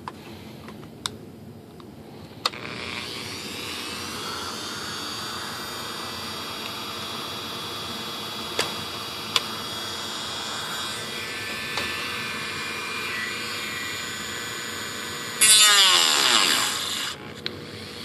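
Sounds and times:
cutoff disc grinding: 8.3s - 18.0s
rotary tool whirring: 9.6s - 18.0s.

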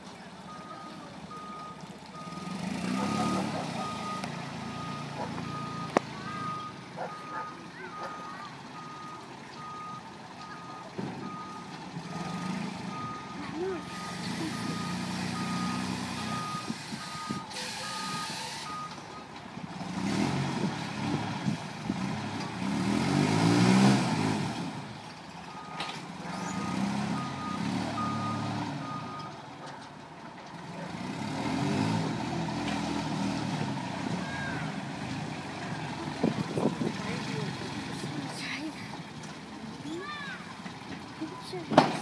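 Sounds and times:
backup alarm beeping: 0.5s - 19.0s
forklift engine revving: 0.5s - 29.6s, 30.5s - 42.0s.

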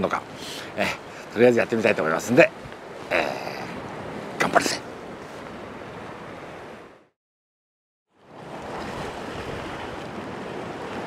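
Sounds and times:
sea surf rushing: 0.0s - 7.1s, 8.2s - 11.0s
wind on the microphone: 8.4s - 11.0s.

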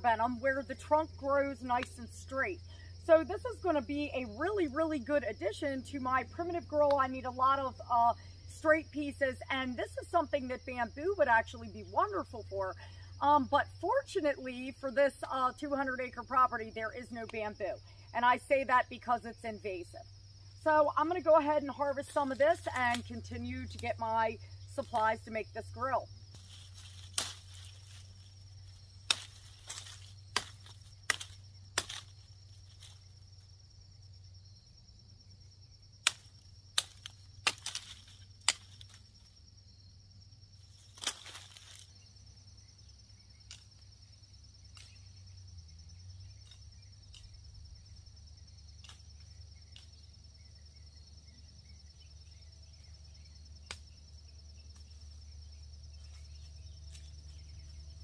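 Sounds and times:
insects trilling: 0.0s - 58.0s
knife chopping into sapling: 27.1s - 27.6s, 29.1s - 32.1s, 36.0s - 38.9s, 41.0s - 41.6s.

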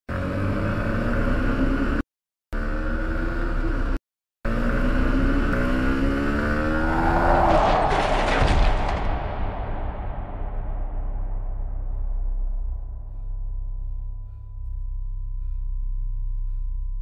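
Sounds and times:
motorcycle engine accelerating: 0.1s - 14.8s
rushing noise: 6.8s - 13.2s.

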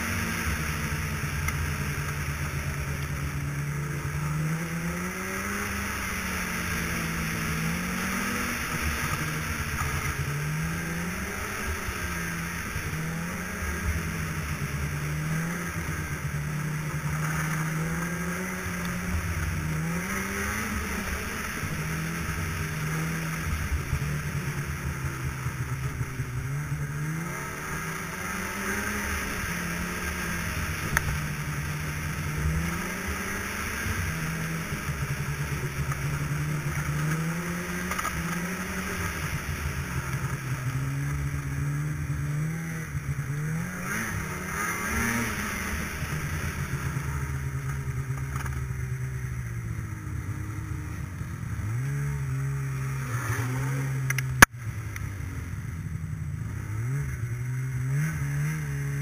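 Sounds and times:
snowmobile engine revving: 0.0s - 59.0s.

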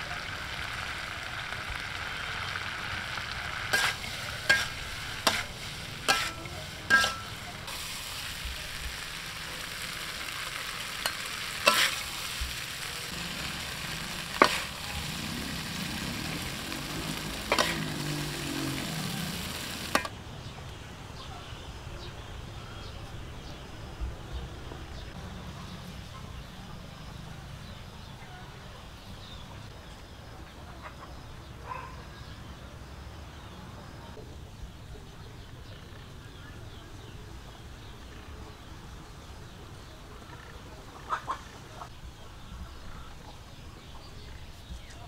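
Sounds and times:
food sizzling in wok: 0.0s - 20.1s
metal utensil clinking on wok: 3.8s - 7.6s, 11.0s - 12.4s.

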